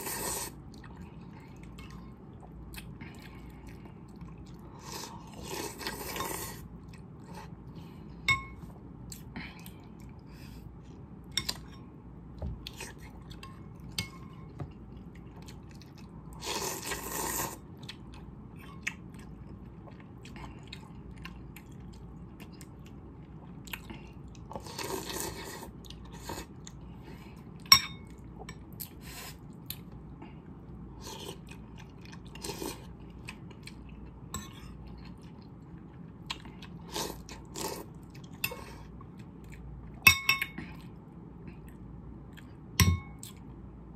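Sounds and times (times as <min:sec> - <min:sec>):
slurping noodles: 0:00.0 - 0:00.6, 0:16.4 - 0:17.6
metal spoon clinking on bowl: 0:40.0 - 0:40.6.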